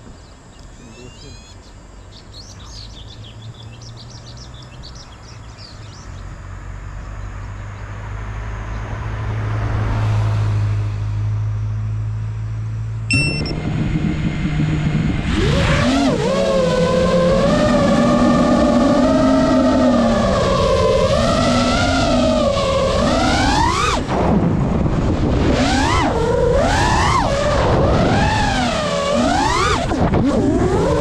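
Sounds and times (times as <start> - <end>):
birds chirping: 0.0 - 6.4
van driving past: 2.2 - 15.5
drone motors whining: 13.1 - 31.0.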